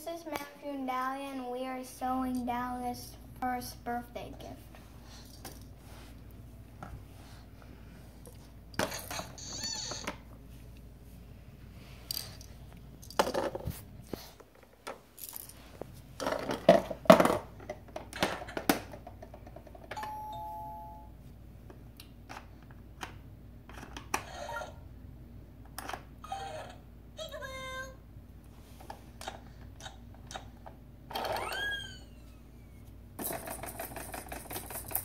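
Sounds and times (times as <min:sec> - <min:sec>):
toy doorbell ding-dong chime: 0:19.9 - 0:21.1
plastic toy clicking and clattering: 0:33.2 - 0:35.0.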